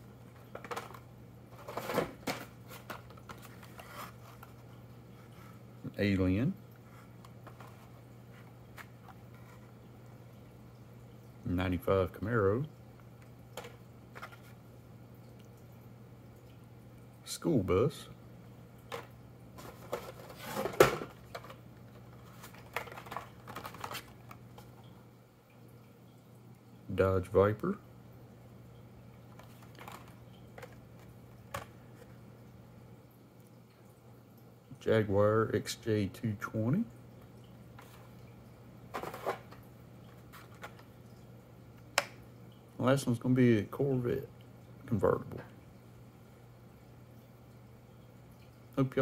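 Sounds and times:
low steady hum: 0.0 - 49.0
cardboard and plastic packaging rustling: 0.3 - 5.6, 6.8 - 9.8, 13.6 - 14.6, 18.9 - 24.9, 29.3 - 32.1, 38.9 - 40.9.

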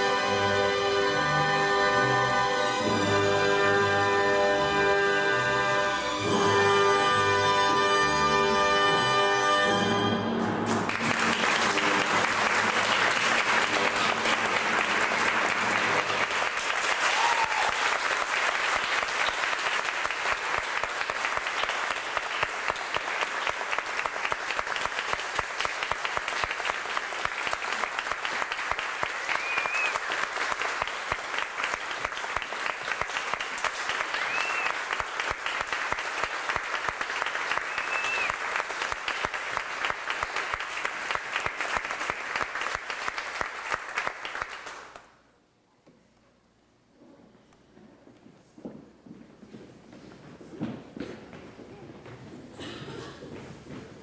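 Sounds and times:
audience applauding: 10.6 - 45.2.

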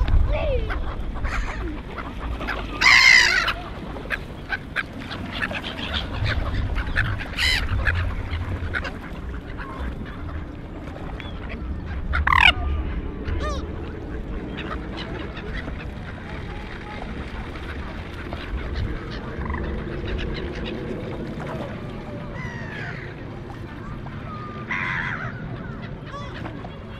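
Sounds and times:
steady low rumble: 0.0 - 26.9
loud bird calls: 0.7 - 10.4.

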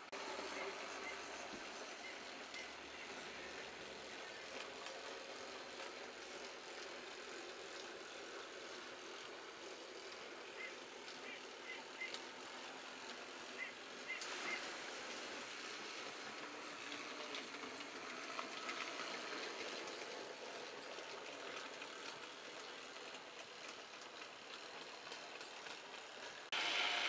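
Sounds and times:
model train rolling on track: 0.0 - 27.0.

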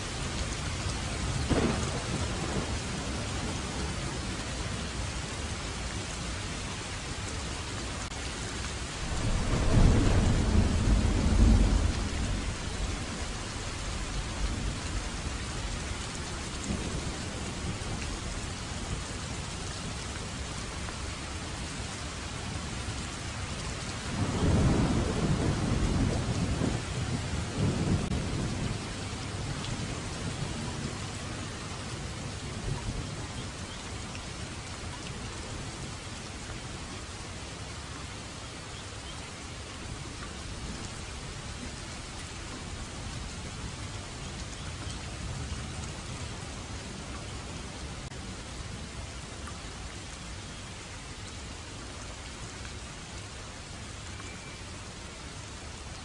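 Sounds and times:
steady rain: 0.0 - 56.0
thunder rumbling: 0.3 - 4.4, 9.0 - 18.0, 24.0 - 31.2.

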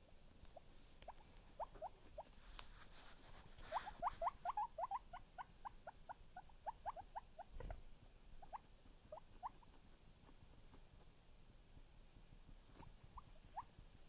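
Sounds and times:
guinea pig squeaking: 0.5 - 2.4, 3.6 - 10.4, 12.8 - 13.8.

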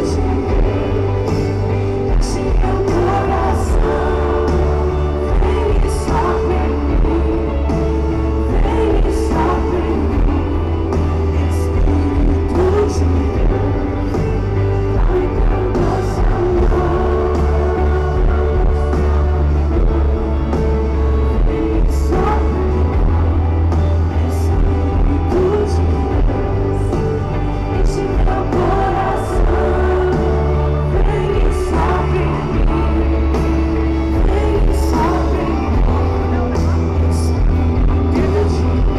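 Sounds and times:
band with booming bass: 0.0 - 38.9
person singing: 0.0 - 38.9.

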